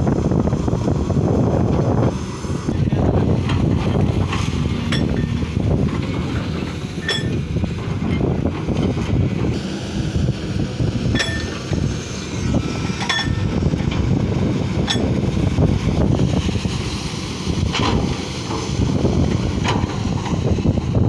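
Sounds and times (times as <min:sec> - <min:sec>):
heavy diesel machinery rumble: 0:00.0 - 0:21.0
wind buffeting microphone: 0:00.0 - 0:21.0
short ringing clinks: 0:07.0 - 0:07.4, 0:11.2 - 0:11.6.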